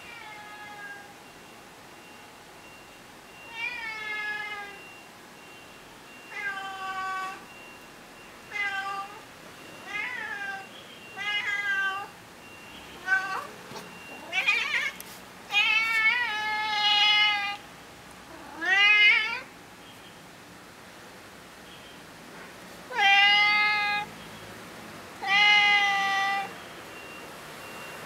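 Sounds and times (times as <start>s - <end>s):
cat meowing: 0.1s - 1.1s, 9.8s - 12.1s, 13.0s - 13.6s, 14.2s - 17.6s, 18.3s - 19.5s, 22.9s - 24.1s, 25.2s - 26.5s.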